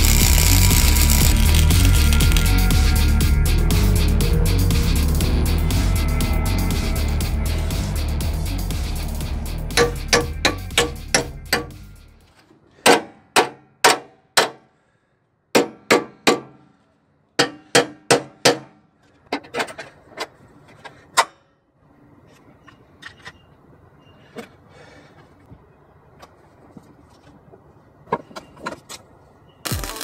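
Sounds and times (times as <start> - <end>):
background music: 0.0 - 12.3, 29.6 - 30.0
hammer striking sheet steel: 9.7 - 11.8, 12.8 - 14.7, 15.6 - 16.6, 17.4 - 18.8.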